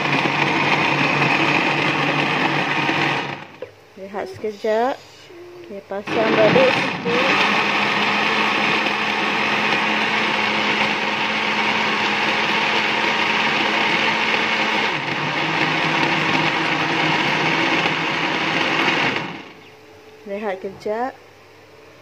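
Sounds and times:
blender running: 0.0 - 3.7, 6.0 - 19.6.

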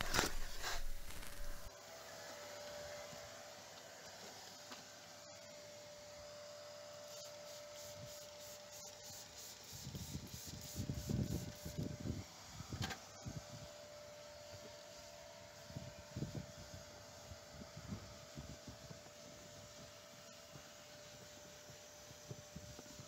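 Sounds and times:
cloth rubbing on leather seat: 0.0 - 1.7
faint steady hum: 0.0 - 1.7.

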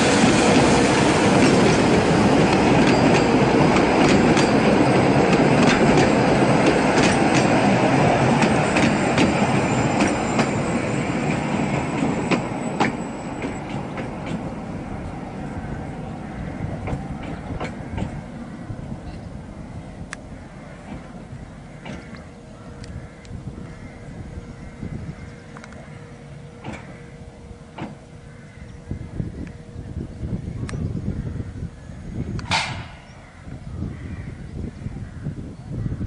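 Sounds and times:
tram wheels rumbling on rails: 0.0 - 36.0.

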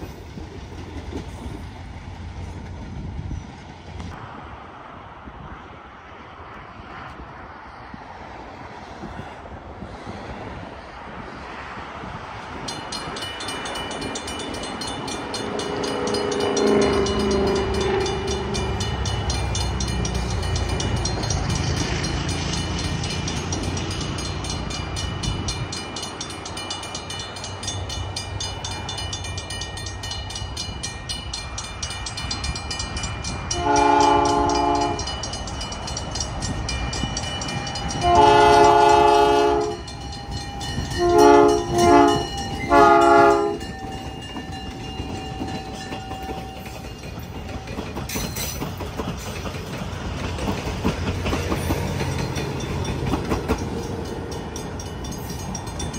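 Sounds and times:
rumble of road traffic: 0.0 - 55.9
locomotive air horn blasts: 33.6 - 35.1, 38.0 - 40.0, 40.9 - 43.7.

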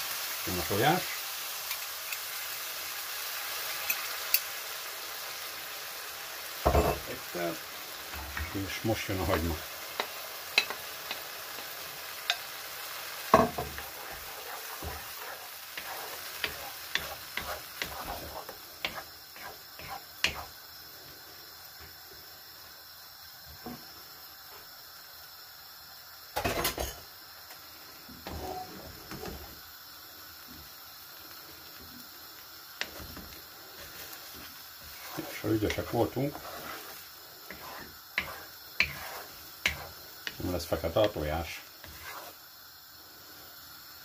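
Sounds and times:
food sizzling in a frying pan: 0.0 - 44.0
wooden spatula scraping a pan: 13.3 - 20.5, 28.2 - 28.8, 32.8 - 42.4.

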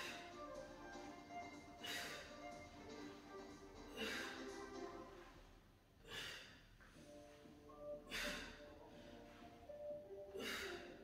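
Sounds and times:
quiet background music: 0.0 - 11.0
forceful exhalations: 1.8 - 2.5, 3.9 - 4.5, 6.0 - 6.8, 8.0 - 9.4, 10.3 - 11.0.

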